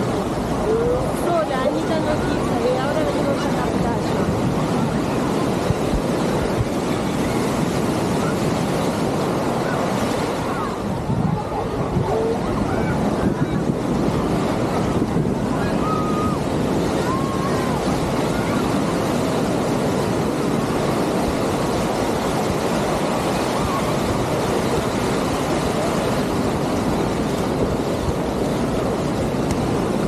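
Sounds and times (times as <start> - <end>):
ocean surf on sandy beach: 0.0 - 30.0
wind buffeting microphone: 0.0 - 30.0.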